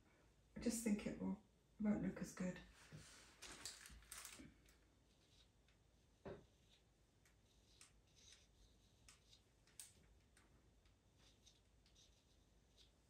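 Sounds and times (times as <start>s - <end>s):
pencil scratching on paper: 5.0s - 9.5s, 11.0s - 13.0s.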